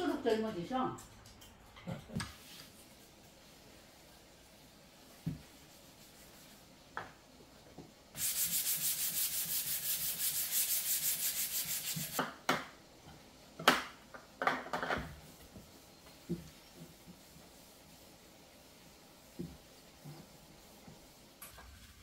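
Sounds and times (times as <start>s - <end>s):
scrub pad rubbing wooden board: 8.2s - 12.2s.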